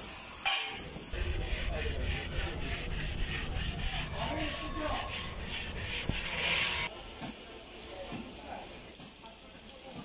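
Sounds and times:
spreader scraping body filler: 0:01.1 - 0:06.9.

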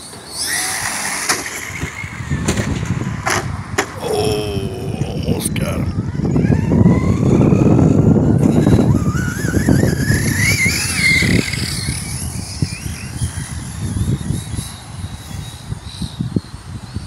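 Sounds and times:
tyre and ground noise: 0:00.0 - 0:05.9
electric motor whine: 0:05.9 - 0:16.9.

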